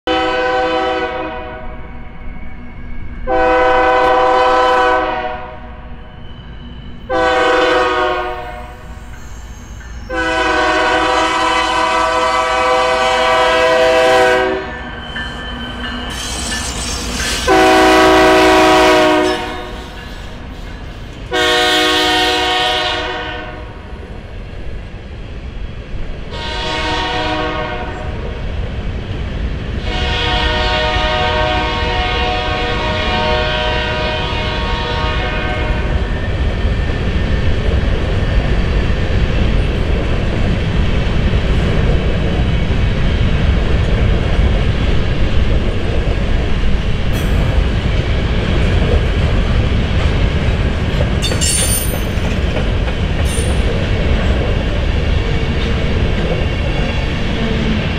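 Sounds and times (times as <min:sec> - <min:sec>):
locomotive air horn blasts: 0:00.1 - 0:01.8, 0:03.3 - 0:05.7, 0:07.1 - 0:08.8, 0:10.1 - 0:14.7, 0:17.5 - 0:19.8, 0:21.3 - 0:23.8, 0:26.3 - 0:28.2, 0:29.8 - 0:36.0
low rumble of locomotive engines: 0:00.1 - 0:57.9
train wheels clacking over rails: 0:07.3 - 0:23.0, 0:35.8 - 0:57.9.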